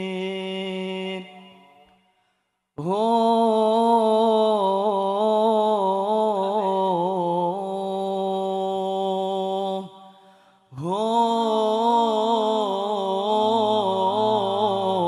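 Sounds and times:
man singing a long melismatic note: 10.8s - 15.0s.

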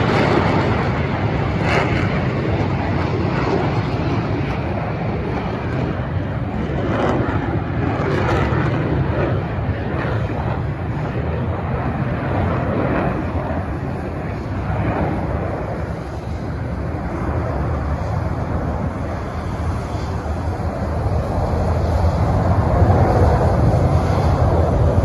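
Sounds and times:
distant jet rumble: 0.0s - 25.0s.

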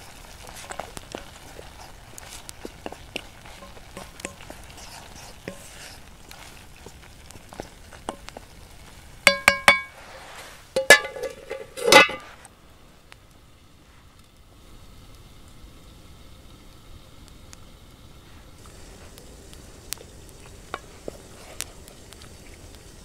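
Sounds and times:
wooden spoon stirring rice in pot: 0.0s - 12.4s, 18.3s - 23.0s
metal lid clattering on pot: 9.3s - 9.9s, 10.8s - 12.2s
ringing knocks on pot: 9.3s - 9.9s.

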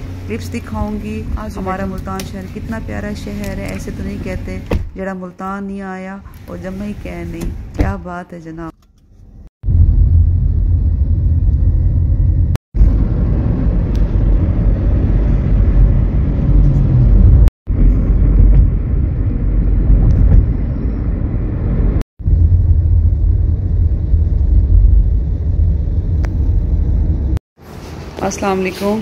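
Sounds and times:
road and wind noise inside car: 8.6s - 29.0s.

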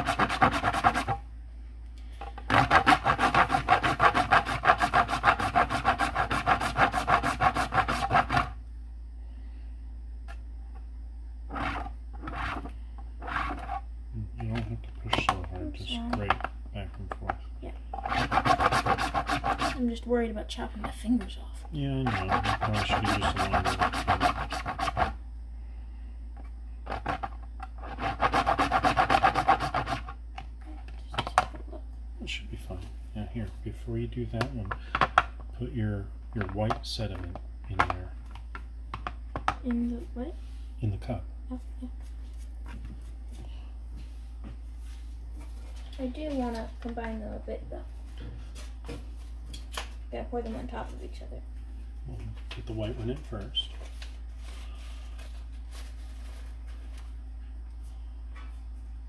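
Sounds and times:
wax candle rasping on metal grater: 0.0s - 1.2s, 2.5s - 8.5s, 11.5s - 13.8s, 18.0s - 19.8s, 22.0s - 25.2s, 26.9s - 30.1s.

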